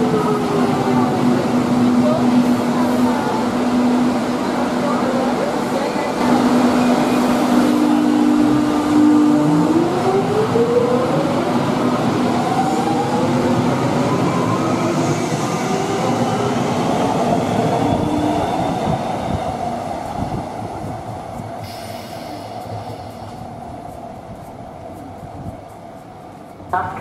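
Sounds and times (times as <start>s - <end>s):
rumble of wheels on rail: 0.0s - 27.0s.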